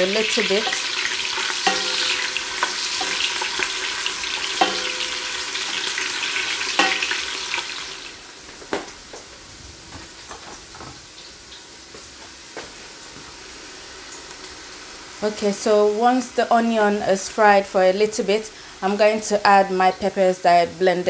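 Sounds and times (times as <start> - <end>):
onions sizzling in hot oil: 0.0 - 9.5, 11.0 - 20.4
spoon clanking against metal pot: 1.6 - 3.5, 4.5 - 5.8, 6.7 - 7.2.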